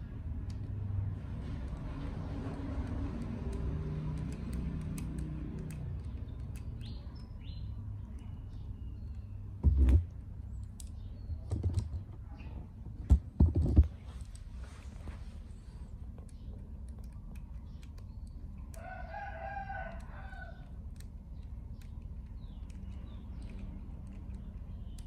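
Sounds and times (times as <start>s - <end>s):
small clicks and taps: 1.4s - 7.0s, 16.1s - 19.2s, 19.8s - 25.0s.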